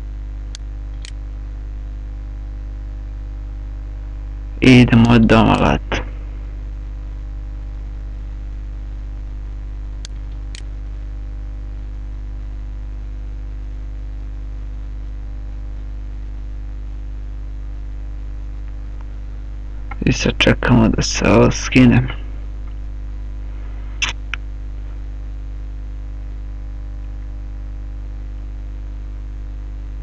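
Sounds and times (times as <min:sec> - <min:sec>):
electrical mains hum: 0:00.0 - 0:30.0
short clicks: 0:24.0 - 0:24.4.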